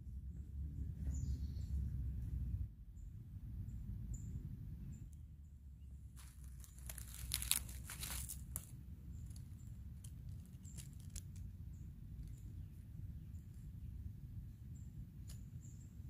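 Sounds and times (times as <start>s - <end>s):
steady low rumble: 0.0s - 16.0s
rustling and crinkling leaves: 6.1s - 12.8s.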